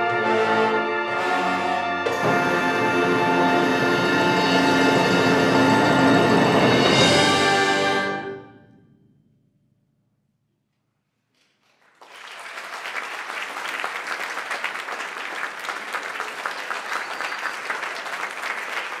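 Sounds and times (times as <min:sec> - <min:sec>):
audience applauding: 0:11.4 - 0:19.0.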